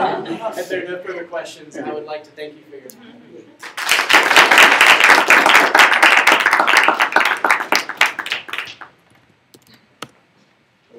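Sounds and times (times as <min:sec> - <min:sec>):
audience clapping: 0:03.6 - 0:09.0.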